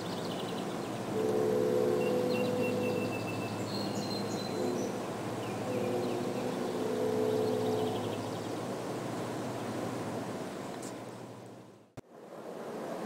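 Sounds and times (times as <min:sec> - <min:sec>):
train noise rushing: 0:00.8 - 0:11.2
distant locomotive air horn: 0:01.1 - 0:08.6.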